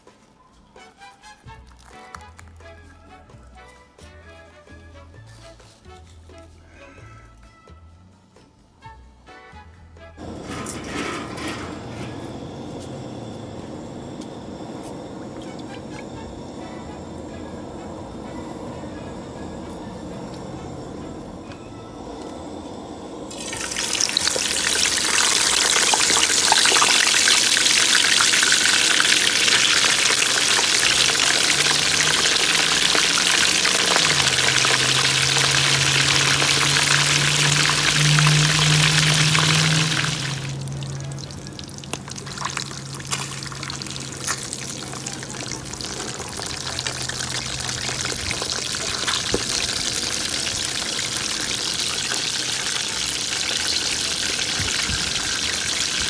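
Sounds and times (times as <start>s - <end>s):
oil popping and crackling: 1.5s - 2.7s, 23.3s - 56.0s
fish sizzling in hot oil: 23.3s - 56.0s.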